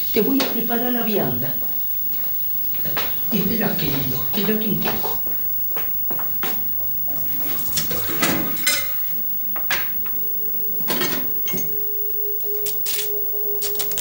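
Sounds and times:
dishes and cutlery clinking: 7.4s - 10.0s, 10.8s - 11.8s.

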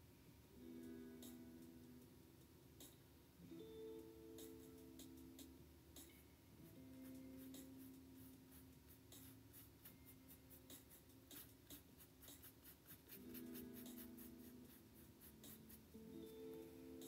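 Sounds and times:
paintbrush strokes on canvas: 6.7s - 16.0s.

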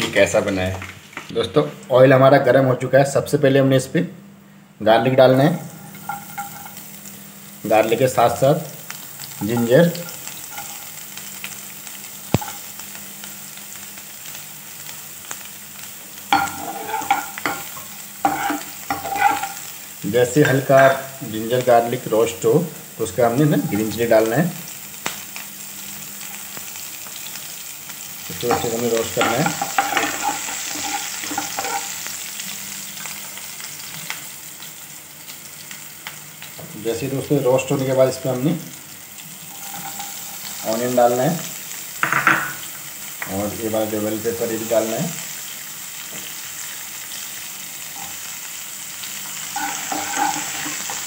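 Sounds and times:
garlic sizzling in hot oil: 4.9s - 51.0s
metal spatula scraping a pan: 16.4s - 19.6s, 29.2s - 32.0s, 39.5s - 40.6s, 49.5s - 51.0s.

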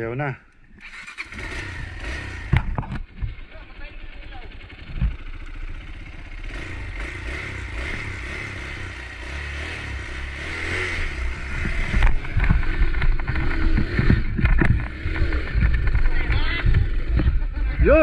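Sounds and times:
motorcycle engine rumbling: 0.0s - 18.0s
low thumps and knocks: 11.3s - 18.0s.

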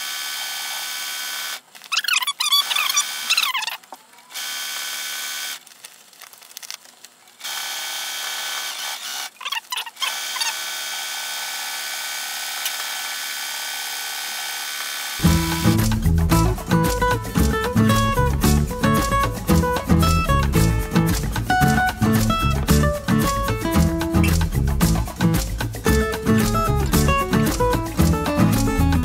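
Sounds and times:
short squeaky sounds: 1.8s - 4.1s, 9.3s - 10.6s, 24.2s - 24.4s
sewing machine motor whining: 7.4s - 15.7s.

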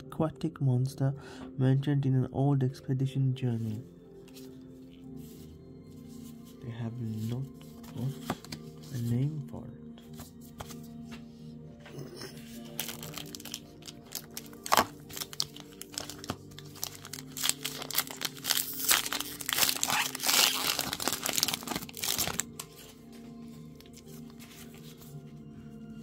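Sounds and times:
soft background music: 0.0s - 26.0s
foil wrapper crinkling and tearing: 12.7s - 22.7s.

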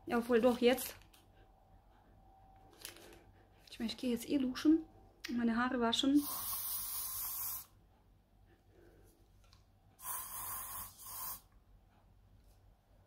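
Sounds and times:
aerosol spray hissing: 6.2s - 7.7s, 10.0s - 11.5s.

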